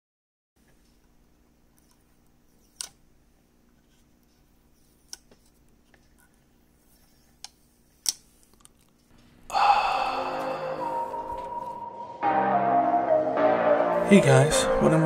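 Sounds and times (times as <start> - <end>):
music: 9.5 - 15.0.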